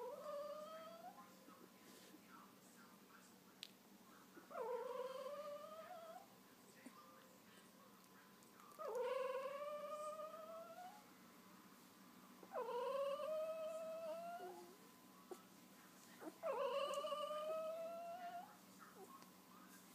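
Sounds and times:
puppy whining: 0.0s - 1.2s, 4.4s - 6.3s, 8.8s - 11.1s, 12.4s - 19.2s.

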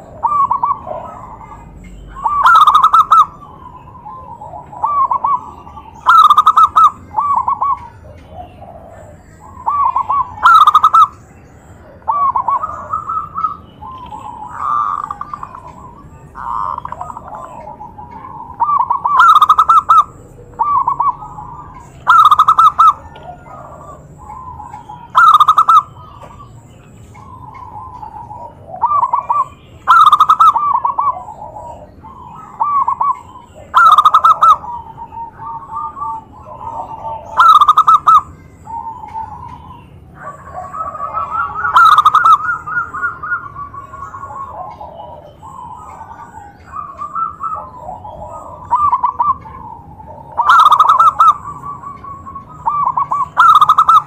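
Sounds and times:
doves cooing: 0.0s - 54.0s.

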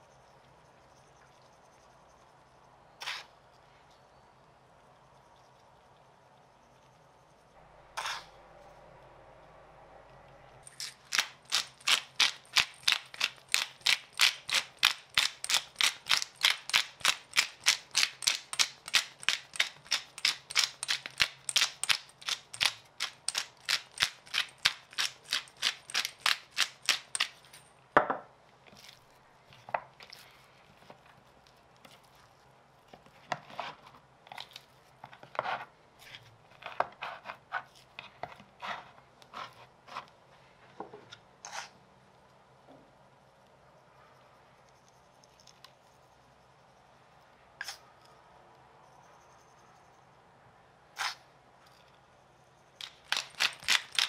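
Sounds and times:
pepper mill grinding: 10.6s - 27.6s, 52.8s - 54.0s.

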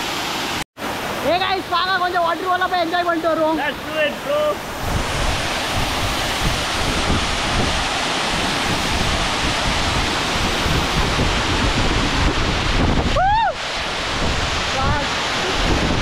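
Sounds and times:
waterfall rushing: 0.0s - 16.0s
wind buffeting microphone: 4.6s - 16.0s.

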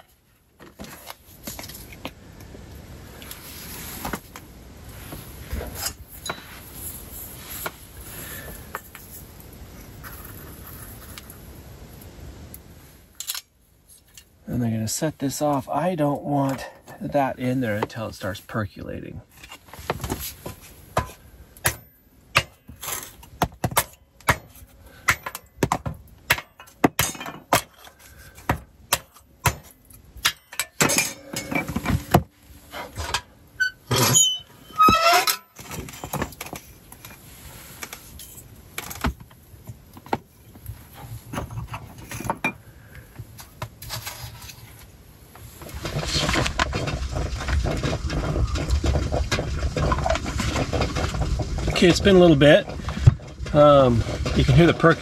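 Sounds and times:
metal cookware clinking: 30.3s - 32.0s
brief squeaks: 33.6s - 35.4s
stovetop percolator bubbling: 46.7s - 54.6s.

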